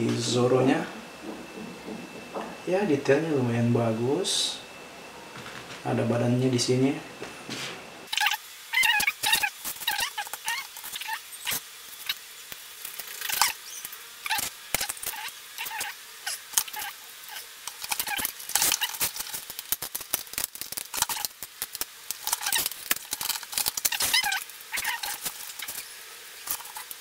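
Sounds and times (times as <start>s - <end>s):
plastic squeaks: 8.1s - 11.6s, 22.2s - 26.9s.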